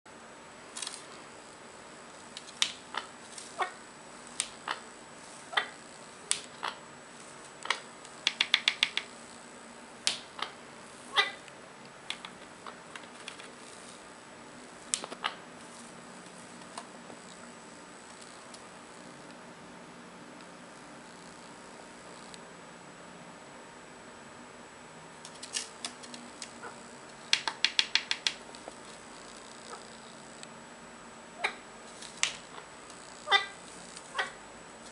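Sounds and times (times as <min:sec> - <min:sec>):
parakeet making sharp clicks: 0:07.7 - 0:09.1, 0:27.3 - 0:28.4.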